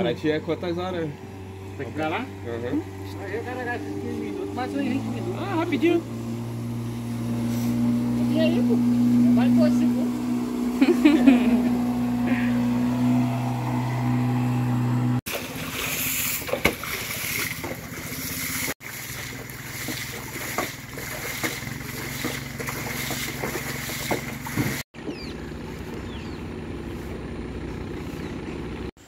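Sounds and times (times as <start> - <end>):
outboard motor droning: 0.0 - 29.0
water splashing and sloshing: 15.2 - 26.2.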